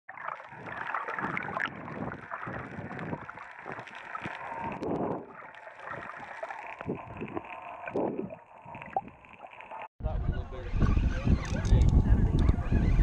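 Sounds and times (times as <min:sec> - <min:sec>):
muffled water sloshing and gurgling: 0:00.1 - 0:10.0.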